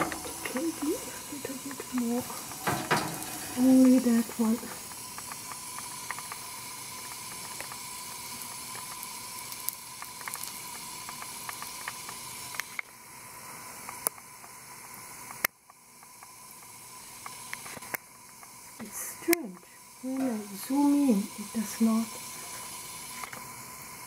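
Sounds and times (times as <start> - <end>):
gas burner hissing: 0.0 - 24.0
small ticks and crackles: 0.0 - 24.0.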